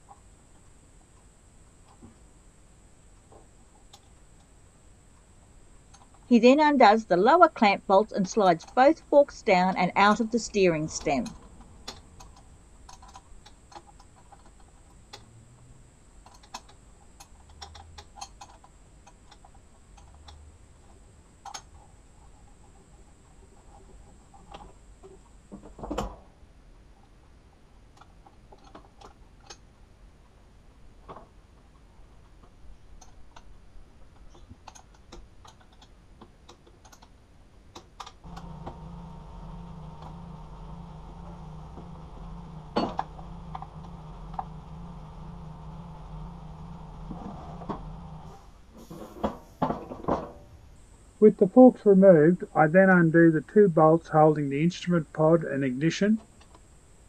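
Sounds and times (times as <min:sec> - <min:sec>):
steady low machine hum: 0:00.0 - 0:25.6, 0:38.2 - 0:57.0.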